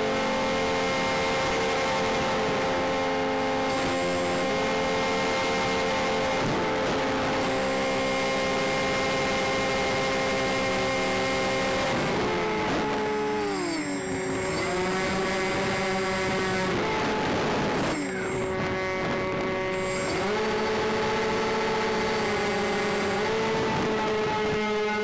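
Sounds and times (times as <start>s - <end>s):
model airplane motors and propellers: 0.0s - 25.0s
wind noise: 11.8s - 25.0s.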